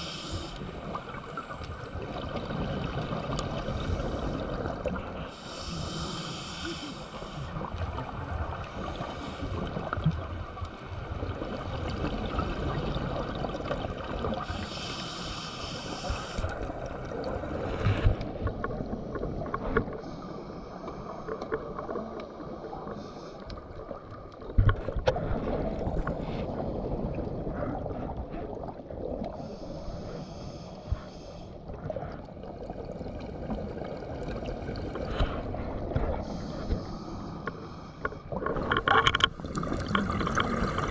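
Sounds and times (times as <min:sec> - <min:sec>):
bubbling hiss: 0:02.8 - 0:07.8, 0:14.3 - 0:16.8.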